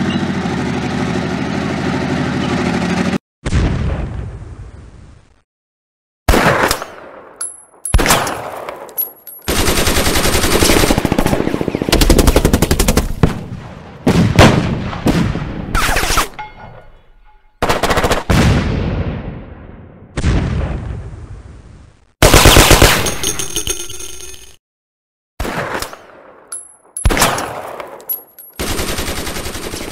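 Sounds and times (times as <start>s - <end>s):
single gunshots: 6.3s - 8.9s
machine-gun fire: 9.5s - 15.5s, 17.6s - 18.7s, 22.2s - 23.5s, 28.6s - 29.9s.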